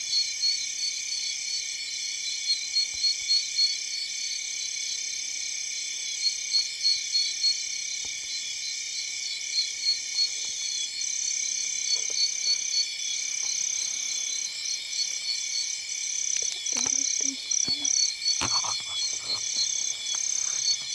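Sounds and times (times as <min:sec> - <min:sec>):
insects and frogs trilling: 0:00.0 - 0:20.9
pulsing calls: 0:16.4 - 0:20.9.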